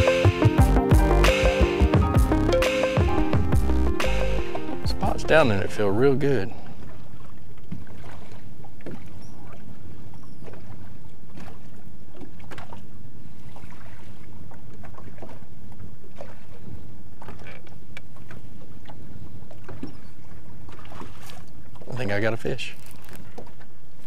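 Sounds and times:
low rumble: 2.0s - 6.8s
waves slapping boat hull: 4.0s - 24.0s.

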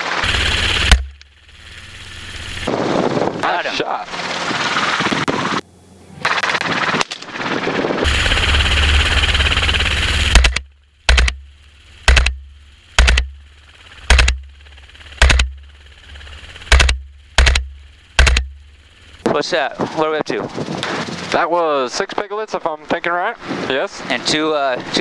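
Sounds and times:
loud steady rushing noise: 0.0s - 25.0s
rifle shots: 10.3s - 11.4s, 12.1s - 12.4s, 13.0s - 13.4s, 14.0s - 14.4s, 15.2s - 15.6s, 16.7s - 18.6s.

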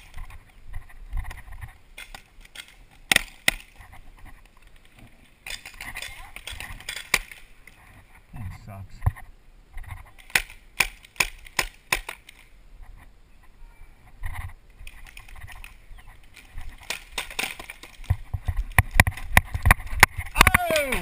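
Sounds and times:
paintball markers shooting: 2.0s - 3.8s, 10.2s - 12.5s, 14.8s - 21.0s
balls striking bunkers: 16.4s - 21.0s.

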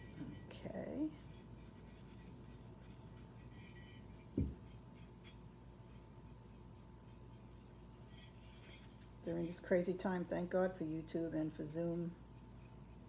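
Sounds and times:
paintbrush bristles scratching: 0.0s - 9.8s
low thump: 4.4s - 4.6s.

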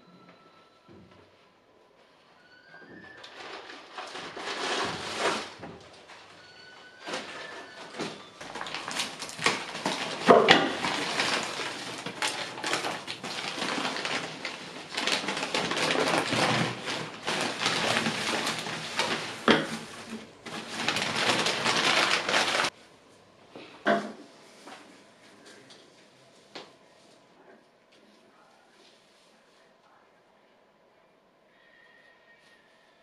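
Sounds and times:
household objects handled: 3.0s - 22.8s.

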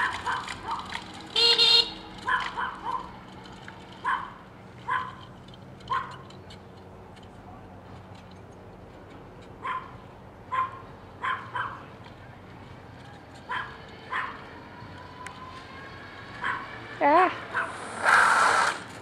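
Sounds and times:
dog barking: 0.0s - 0.9s, 2.2s - 3.1s, 4.0s - 5.2s, 5.9s - 6.2s, 9.6s - 11.9s, 13.5s - 14.4s, 16.4s - 16.7s, 17.5s - 17.8s.

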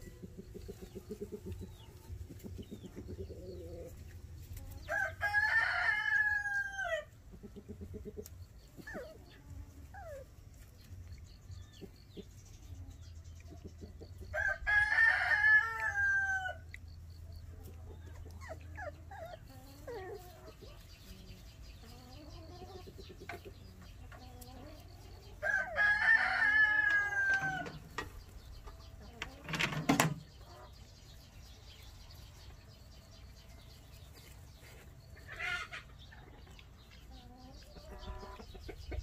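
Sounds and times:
rooster crowing: 4.9s - 7.1s, 14.4s - 16.6s, 25.4s - 27.8s.

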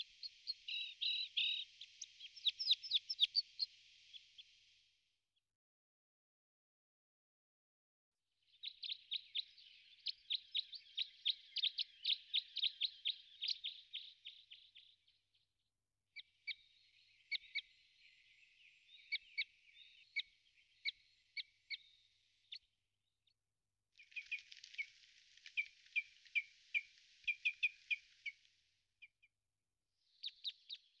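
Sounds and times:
songbird singing: 0.0s - 4.5s, 8.5s - 15.4s, 16.2s - 22.8s, 24.0s - 28.4s, 30.0s - 31.0s.

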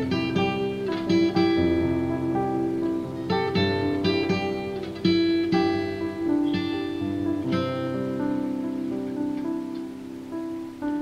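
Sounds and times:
acoustic guitar music: 0.0s - 11.0s.

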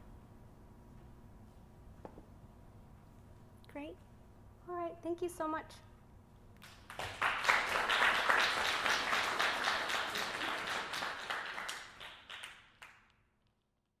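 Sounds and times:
audience applauding: 6.6s - 13.1s.

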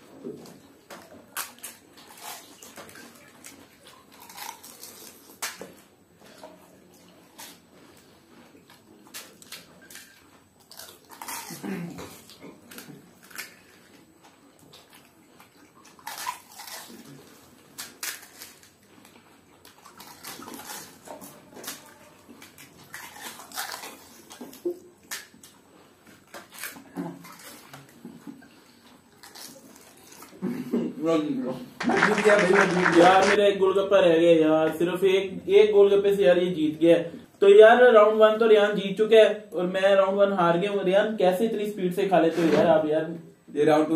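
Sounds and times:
chewing and mouth noises: 0.4s - 30.4s
crisp food crunching: 1.0s - 30.4s.

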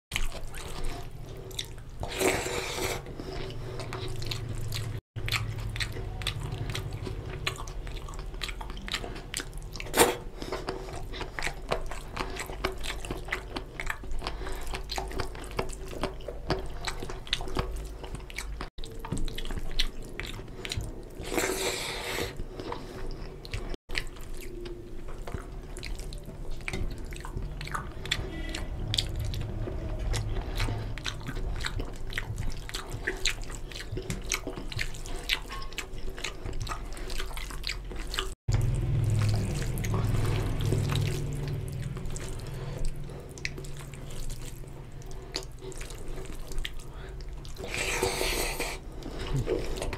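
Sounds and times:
chewing: 0.1s - 49.9s
wet squelching of food mixing: 0.1s - 49.9s.

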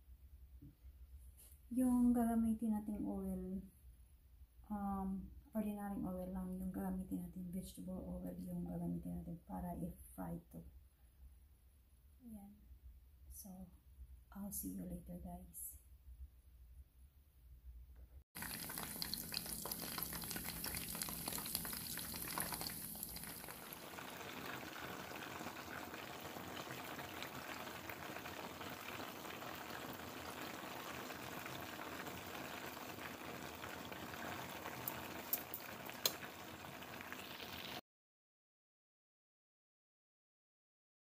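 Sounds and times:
deep-frying sizzle: 18.4s - 37.8s.

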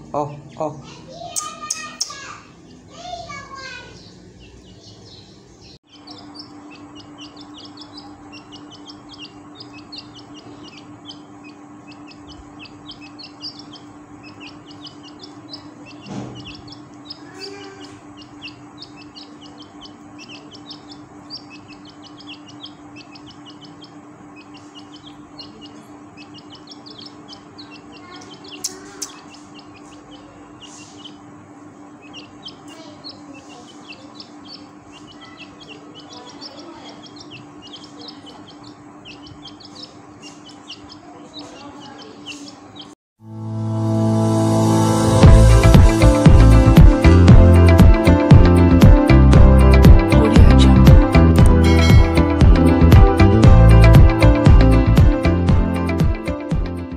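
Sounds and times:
chicks peeping: 0.0s - 43.0s, 44.5s - 56.9s
low hum: 43.2s - 56.9s.

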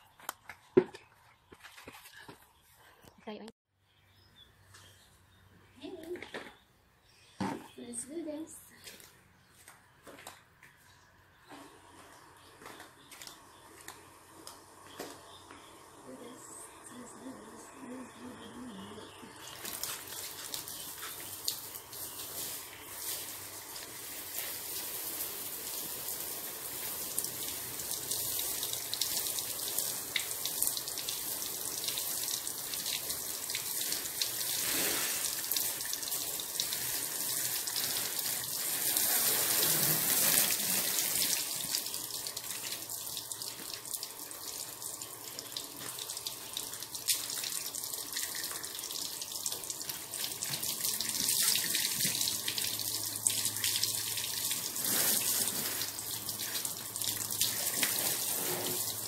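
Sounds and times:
hose spray hissing: 19.6s - 32.3s, 33.6s - 41.8s, 54.6s - 56.0s, 57.5s - 59.0s.

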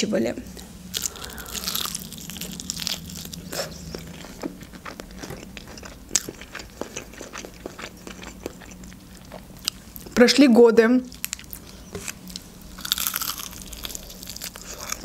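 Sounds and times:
chewing with crackles: 0.6s - 10.2s, 11.1s - 15.0s
biting crispy fried chicken: 1.0s - 8.9s, 12.8s - 15.0s.

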